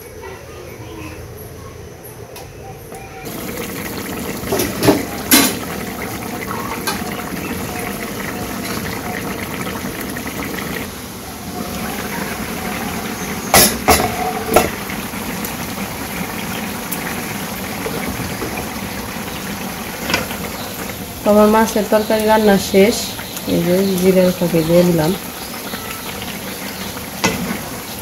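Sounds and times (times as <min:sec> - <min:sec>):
curry bubbling in a wok: 0:03.2 - 0:21.4, 0:25.1 - 0:28.0.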